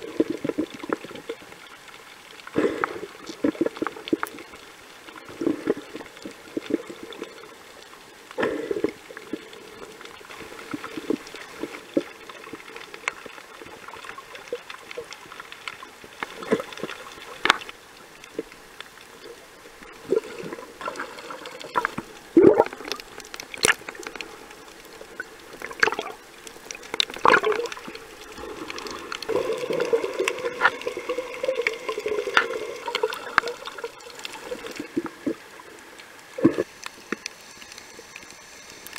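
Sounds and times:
bubbling pops and clicks: 0:00.0 - 0:01.4, 0:19.9 - 0:24.3, 0:24.9 - 0:35.4
muffled underwater water movement: 0:00.0 - 0:38.9.

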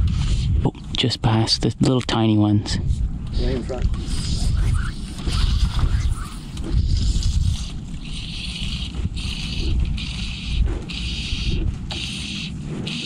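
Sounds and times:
wind buffeting microphone: 0:00.0 - 0:01.0, 0:02.6 - 0:13.0
water hissing against hull: 0:04.0 - 0:13.0.

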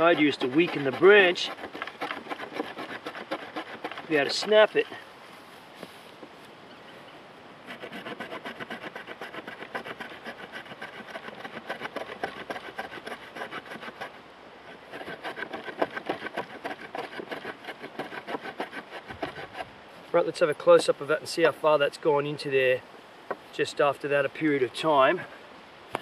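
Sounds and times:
saw rasping through wood: 0:00.0 - 0:05.0, 0:07.6 - 0:19.7.

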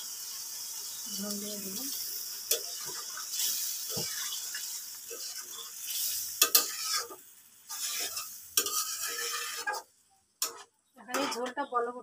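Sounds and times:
hissing sizzle: 0:00.0 - 0:11.4
spatula scraping metal pan: 0:02.5 - 0:11.5.

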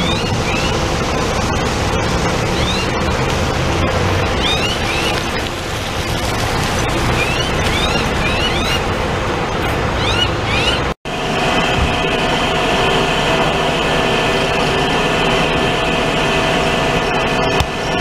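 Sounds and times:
diesel bus engine running: 0:00.0 - 0:18.0
tyre hiss on wet road: 0:04.8 - 0:08.3.

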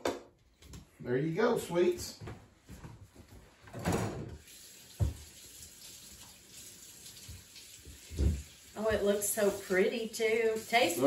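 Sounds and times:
faucet running into sink: 0:04.4 - 0:11.0.

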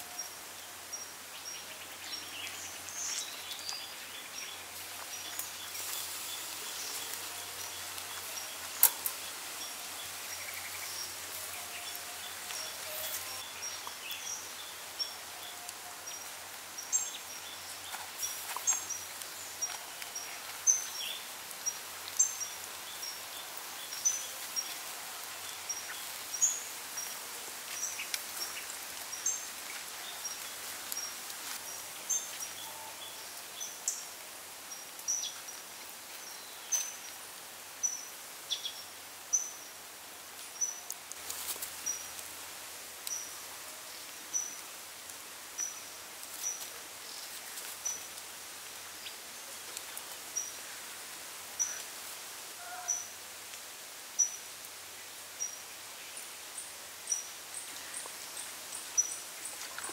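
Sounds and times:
chicken sizzling on a grill: 0:00.0 - 0:56.3
crackles and pops: 0:05.0 - 0:09.3.

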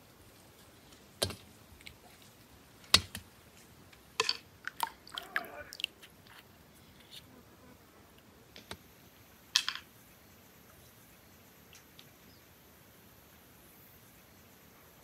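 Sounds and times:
water sloshing in a basin: 0:04.2 - 0:06.4.

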